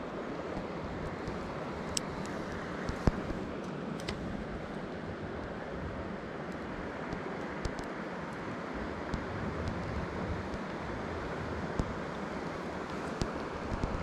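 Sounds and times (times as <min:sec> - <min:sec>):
faint ticks: 0:06.5 - 0:08.4
wind buffeting microphone: 0:08.7 - 0:14.0.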